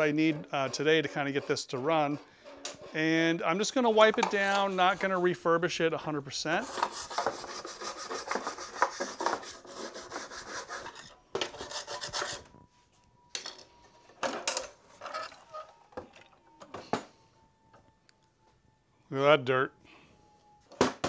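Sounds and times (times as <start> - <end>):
cloth rag rubbing sheet metal: 2.9 - 5.6, 6.5 - 12.6.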